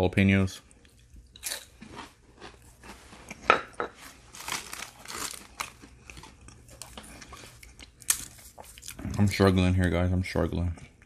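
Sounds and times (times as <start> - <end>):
plastic sleeve crinkling: 4.0 - 7.0.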